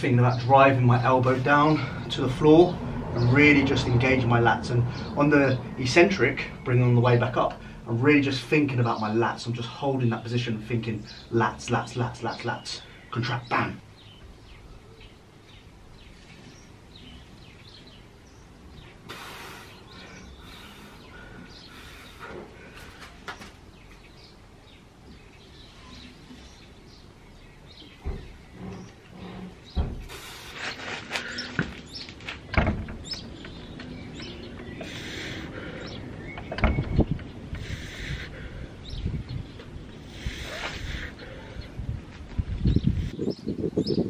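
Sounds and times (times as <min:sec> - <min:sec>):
weights knocking and clanking: 0:31.2 - 0:34.9, 0:35.8 - 0:37.6.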